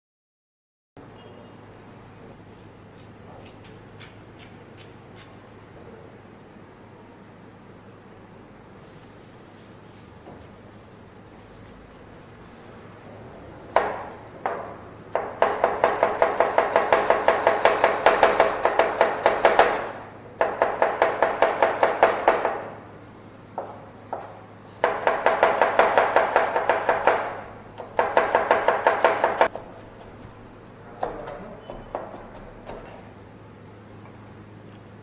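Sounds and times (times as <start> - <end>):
knife chopping onion on board: 3.0 - 5.3, 13.7 - 22.7, 23.6 - 33.1.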